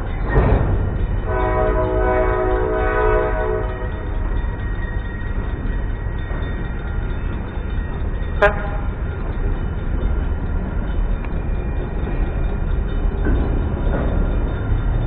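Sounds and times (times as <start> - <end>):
freight train rumbling: 0.0 - 15.0
train horn toot: 1.3 - 4.0, 8.4 - 8.9.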